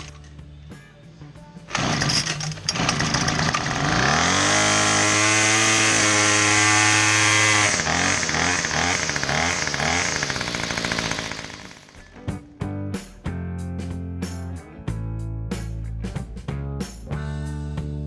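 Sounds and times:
string trimmer engine revving: 0:01.7 - 0:12.2.

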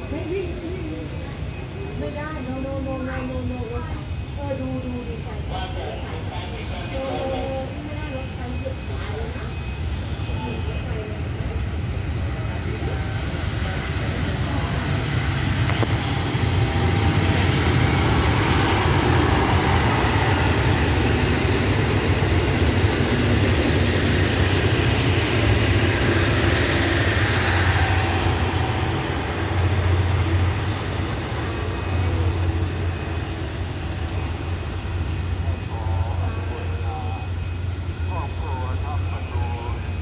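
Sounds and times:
train wheel and rail noise: 0:00.0 - 0:40.0
diesel engine drone: 0:11.4 - 0:40.0.

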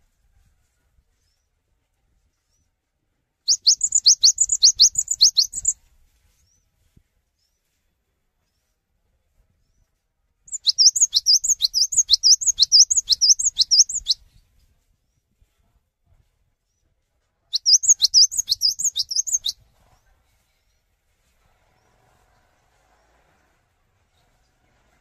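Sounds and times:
bird whistling song: 0:03.5 - 0:05.8, 0:10.5 - 0:14.2, 0:17.5 - 0:19.6.

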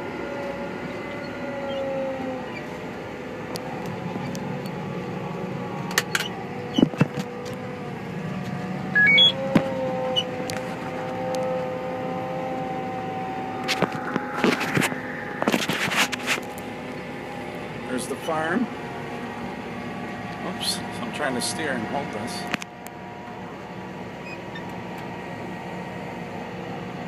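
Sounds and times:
tractor engine running: 0:00.0 - 0:27.0
rising three-note beep: 0:08.9 - 0:09.4.

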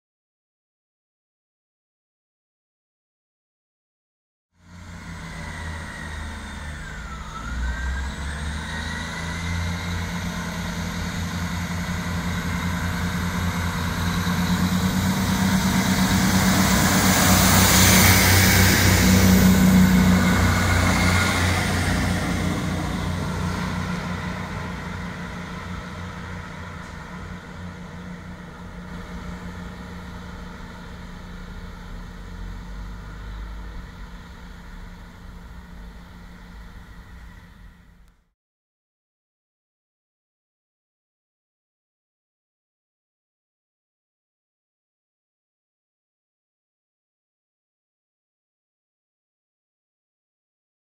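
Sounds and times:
high whine rising in pitch: 0:04.6 - 0:38.1
diesel train engines: 0:04.6 - 0:38.2.

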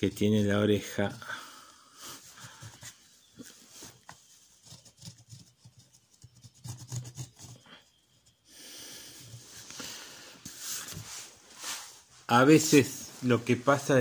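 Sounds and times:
pencil scratching on paper: 0:02.2 - 0:08.5.

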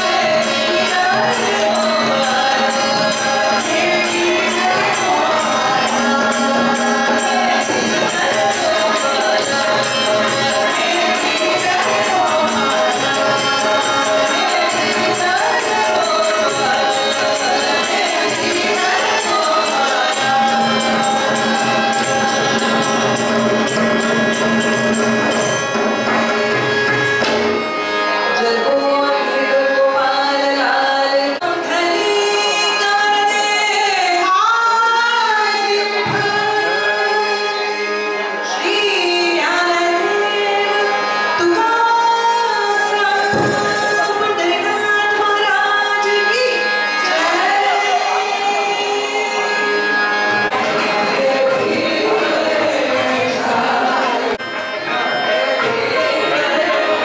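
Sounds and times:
women singing devotional song: 0:00.0 - 0:24.2, 0:28.3 - 0:57.0
jingling percussion beat: 0:00.0 - 0:27.7.

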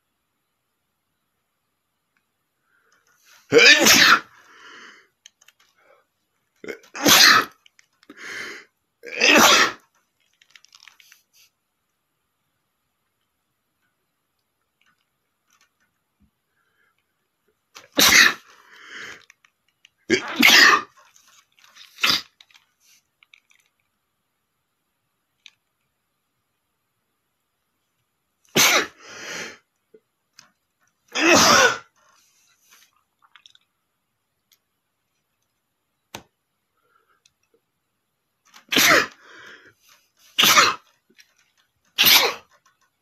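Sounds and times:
man sneezing loudly: 0:03.3 - 0:04.4, 0:06.7 - 0:07.6, 0:09.0 - 0:09.8, 0:17.8 - 0:18.5, 0:20.1 - 0:20.9, 0:28.5 - 0:29.0, 0:31.1 - 0:31.9, 0:38.7 - 0:39.2, 0:40.4 - 0:40.9, 0:42.0 - 0:42.5.

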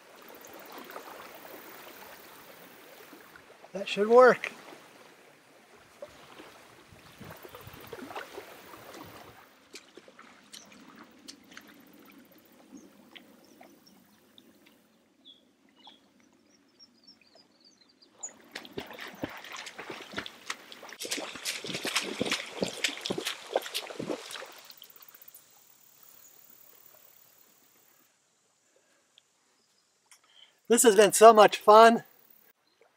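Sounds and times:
person wading through water: 0:00.0 - 0:03.7, 0:04.5 - 0:14.9, 0:18.2 - 0:25.3
lake water lapping: 0:00.0 - 0:28.0.

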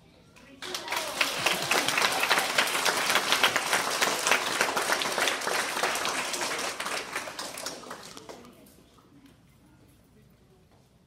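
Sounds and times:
audience applauding: 0:00.6 - 0:08.5.

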